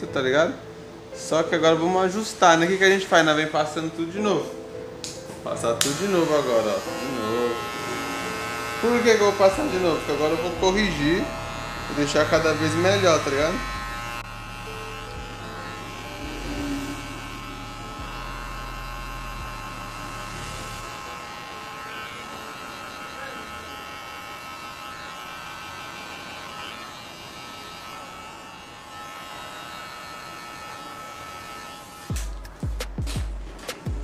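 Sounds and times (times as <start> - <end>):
hair clipper buzzing: 4.4 - 33.3.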